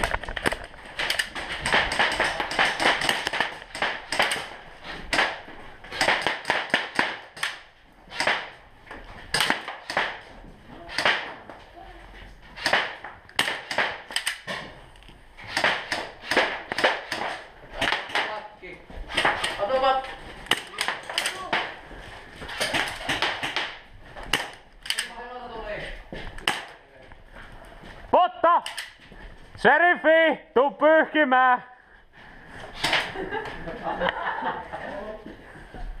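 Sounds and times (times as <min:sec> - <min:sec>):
airsoft guns firing: 0:00.4 - 0:08.6, 0:09.3 - 0:11.5, 0:12.6 - 0:14.8, 0:15.5 - 0:18.5, 0:20.4 - 0:21.8, 0:22.5 - 0:25.2, 0:26.4 - 0:26.8
pellets striking walls: 0:01.0 - 0:11.6, 0:12.5 - 0:14.8, 0:15.4 - 0:24.7.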